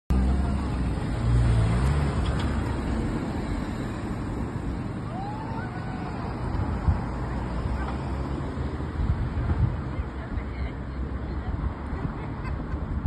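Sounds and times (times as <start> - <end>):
cars driving past: 0.1 - 13.0.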